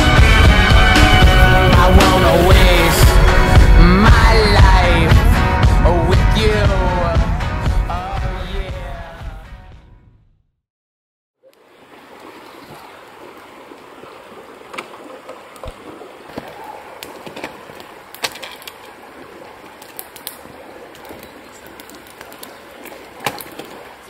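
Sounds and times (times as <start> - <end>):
longboard wheels rolling on asphalt: 0.0 - 3.7.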